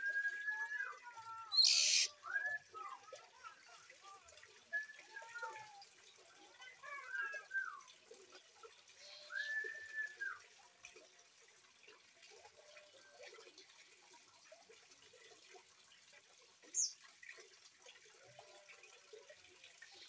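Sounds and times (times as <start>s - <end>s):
water trickling: 0.0s - 20.0s
bird chirping: 1.5s - 2.1s.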